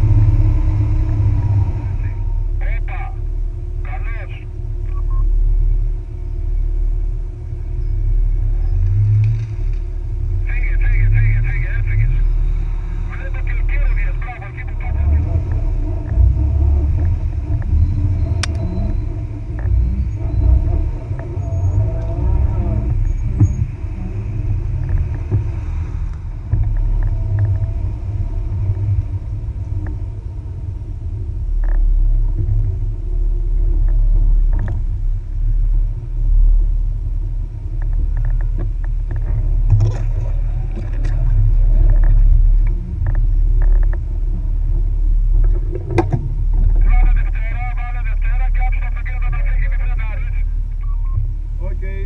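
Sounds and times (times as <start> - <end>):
off-road vehicle engine rumble: 0.0 - 52.0
body and suspension knocks and rattles: 24.6 - 28.0, 37.6 - 44.4, 45.3 - 46.8.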